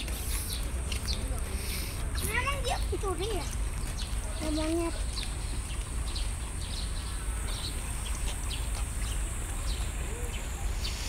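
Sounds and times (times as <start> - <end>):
small birds chirping: 0.0 - 11.0
high-pitched hiss: 9.3 - 11.0.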